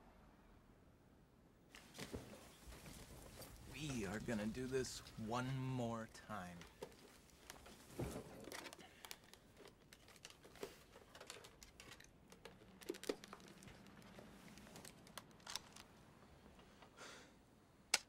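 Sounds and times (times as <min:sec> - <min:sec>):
faint rustling: 0:01.7 - 0:05.3.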